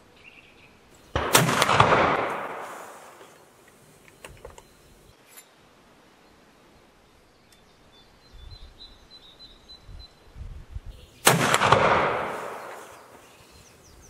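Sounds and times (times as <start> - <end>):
rifle shot: 1.1 - 3.3, 11.2 - 13.2
gunshot echo: 1.2 - 3.3, 11.2 - 13.2.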